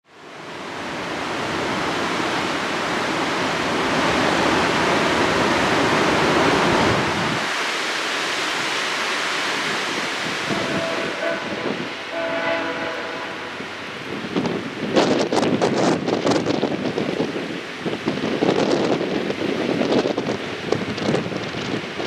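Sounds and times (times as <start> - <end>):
river rapids rushing over rocks: 0.6 - 14.2.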